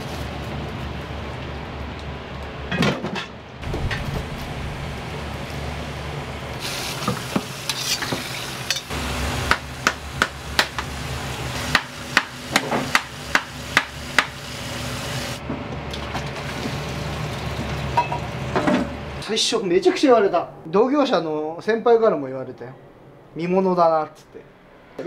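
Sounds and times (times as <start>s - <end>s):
low hum: 3.5s - 6.7s, 24.2s - 25.0s
food sizzling: 3.6s - 15.4s.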